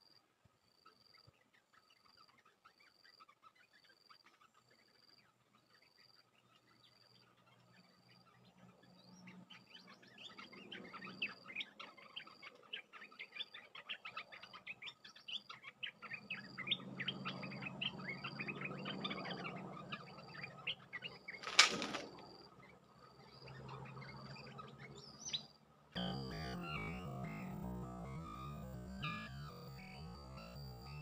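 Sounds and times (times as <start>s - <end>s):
bird wings flapping and rustling: 21.4s - 22.3s
bulbuls chirping: 21.4s - 22.3s.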